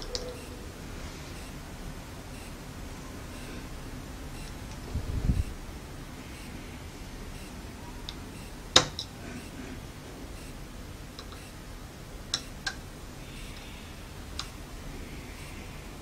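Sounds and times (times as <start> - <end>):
low hiss: 0.0 - 16.0
screwdriver clicking on metal: 11.2 - 11.6.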